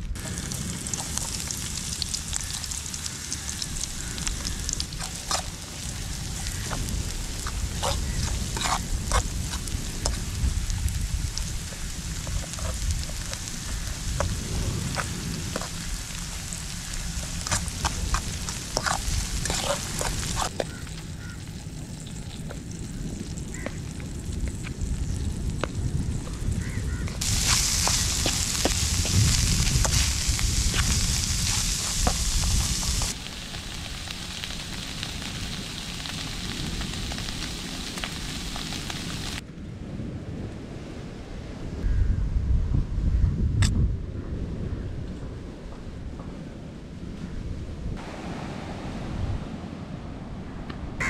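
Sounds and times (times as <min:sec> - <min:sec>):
low rumble: 0:00.0 - 0:35.6
fish sizzling in a pan: 0:00.2 - 0:25.6, 0:26.6 - 0:39.4.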